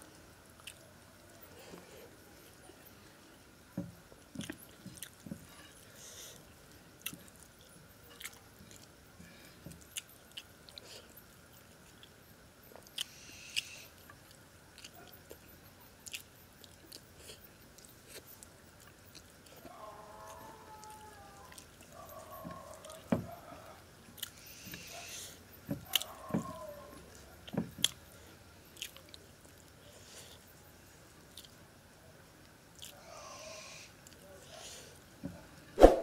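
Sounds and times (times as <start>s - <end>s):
person chewing: 28.8s - 30.4s, 31.3s - 31.6s, 32.8s - 33.0s.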